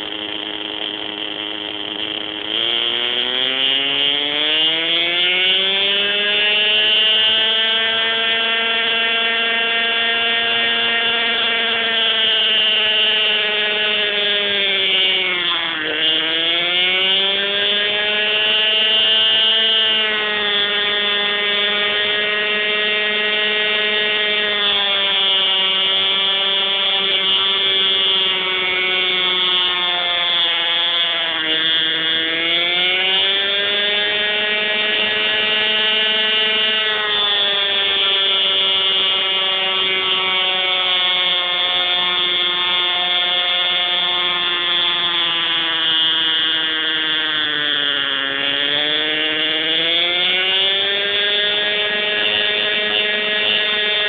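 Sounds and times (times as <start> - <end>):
model helicopter engine whine: 0.0 - 54.0.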